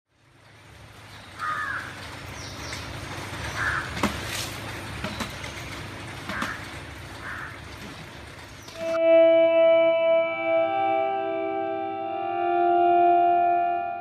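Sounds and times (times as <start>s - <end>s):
crows cawing: 1.4s - 2.1s, 3.5s - 4.1s, 6.3s - 7.7s.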